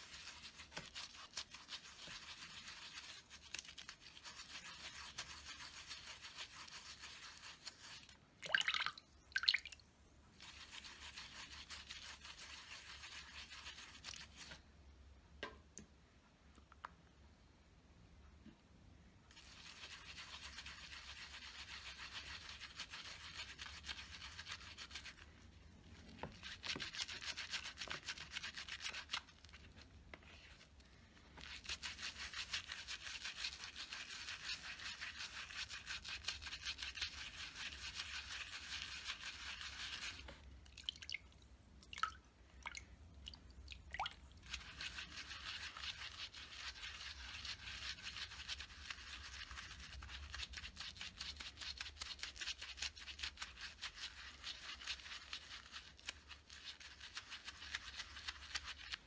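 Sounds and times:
brush scrubbing on a silicone pad: 0:00.0 - 0:08.4, 0:10.3 - 0:14.6, 0:19.3 - 0:40.8, 0:43.9 - 0:59.0
water dripping: 0:08.4 - 0:09.9, 0:40.6 - 0:44.4.

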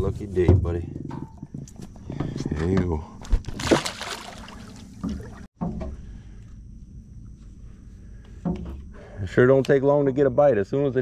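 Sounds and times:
fish splashing into water: 0:03.5 - 0:05.5.

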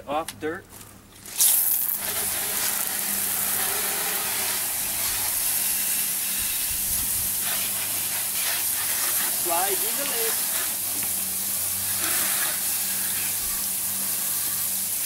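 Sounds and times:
water jets spraying: 0:01.2 - 0:15.0.

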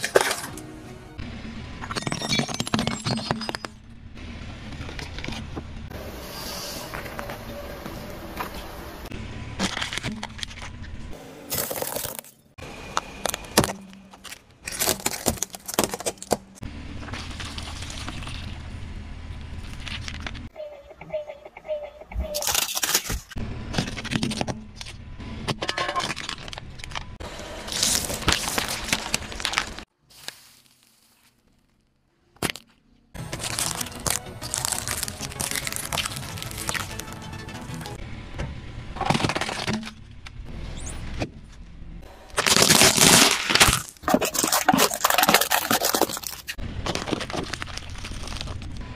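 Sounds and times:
car rumble: 0:00.1 - 0:20.6
objects cracking under tyres: 0:09.6 - 0:18.6, 0:22.4 - 0:37.2, 0:42.3 - 0:48.9.

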